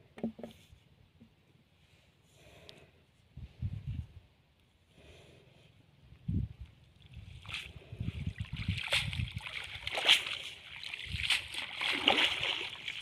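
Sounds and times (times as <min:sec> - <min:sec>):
muddy water splashing: 0:06.9 - 0:13.0
water pouring from net: 0:08.4 - 0:13.0.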